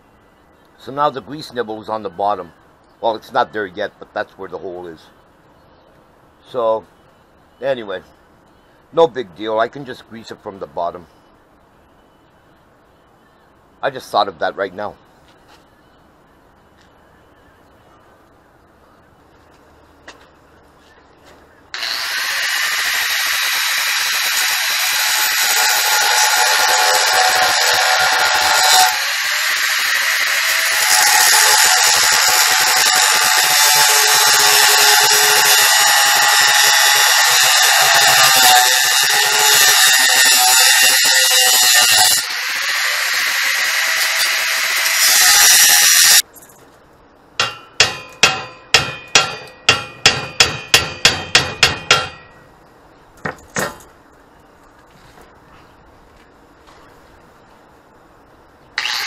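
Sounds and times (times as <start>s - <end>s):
angle grinder grinding steel: 21.8s - 46.2s, 58.8s - 59.0s
hammer striking steel frame: 47.4s - 52.4s.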